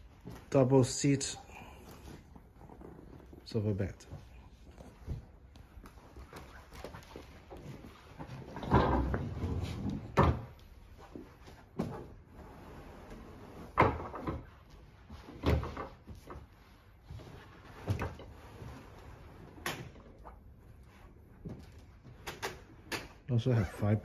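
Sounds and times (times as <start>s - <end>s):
rustling and scraping: 0.0s - 22.9s
sofa bed knocks and thumps: 7.2s - 12.3s.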